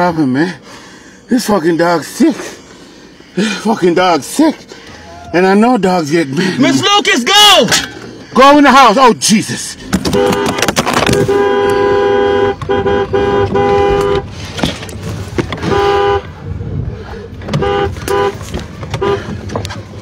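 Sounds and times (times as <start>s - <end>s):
two-note car horn honking: 10.0s - 14.3s, 15.6s - 16.2s, 17.5s - 19.3s.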